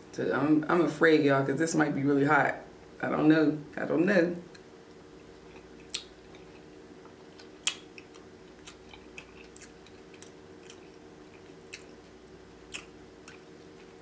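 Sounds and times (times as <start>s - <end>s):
wet chewing: 5.2s - 14.0s.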